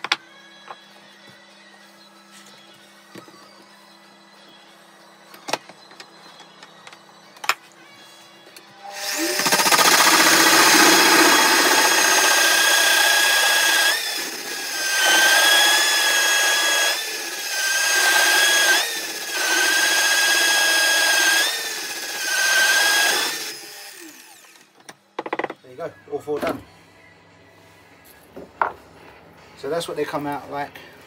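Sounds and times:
pillar drill whining: 8.8s - 24.8s
hole saw cutting wood: 8.9s - 24.6s.

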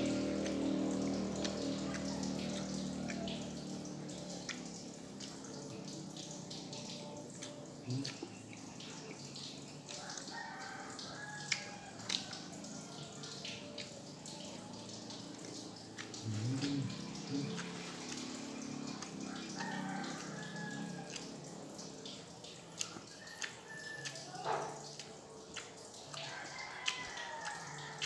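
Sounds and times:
person chewing and lip smacking: 0.0s - 10.3s, 11.0s - 28.0s.

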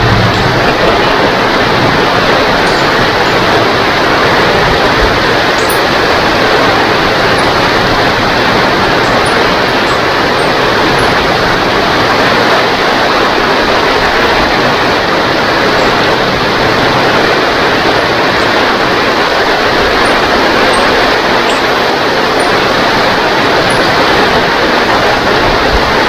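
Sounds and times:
heavy rain: 0.0s - 26.0s.

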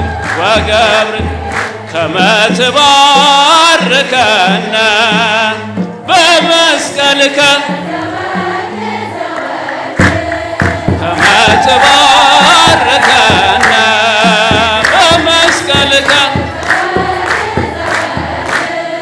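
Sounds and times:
choir singing a hymn: 0.0s - 2.3s, 7.1s - 19.0s
stepping bass line: 10.0s - 18.6s.

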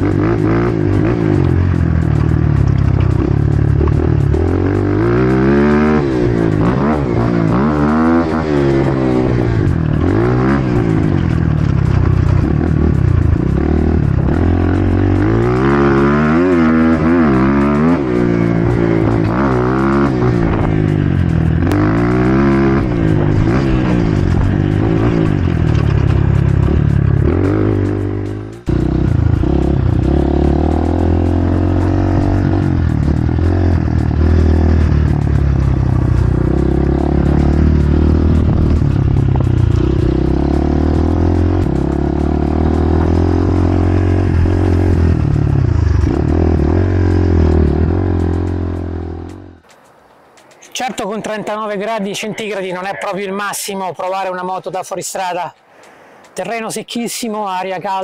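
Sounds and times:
dirt bike engine revving: 0.0s - 49.7s.

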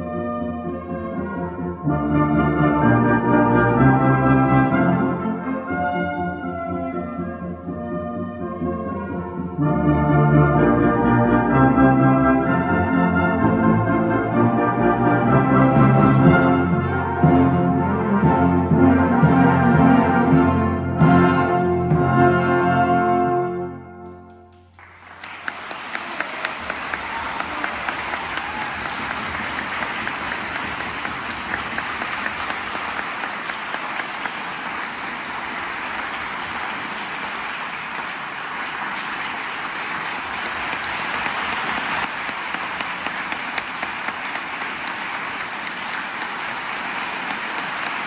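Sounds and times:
audience applause: 24.5s - 48.0s.

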